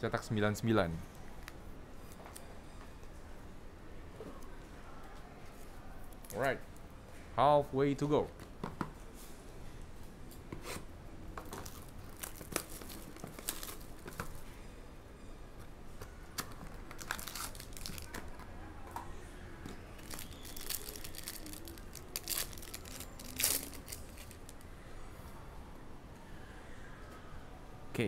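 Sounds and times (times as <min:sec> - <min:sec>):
foil pack crinkling and tearing: 0:11.6 - 0:14.2, 0:16.9 - 0:18.2, 0:20.0 - 0:24.6.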